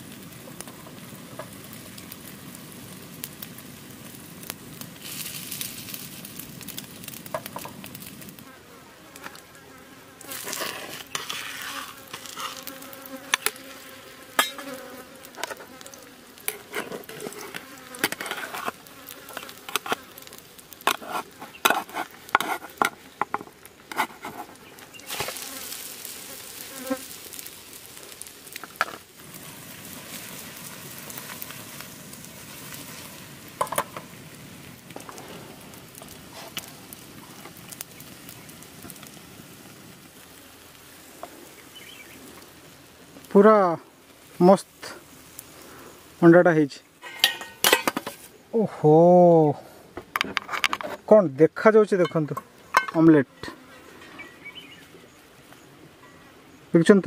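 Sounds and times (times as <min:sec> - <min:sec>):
omelette sizzling in oil: 0:00.0 - 0:46.2
fly buzzing: 0:08.4 - 0:30.5, 0:52.4 - 0:54.9
spatula scraping pan: 0:10.3 - 0:13.6, 0:16.5 - 0:20.0, 0:20.8 - 0:25.6, 0:47.0 - 0:48.2.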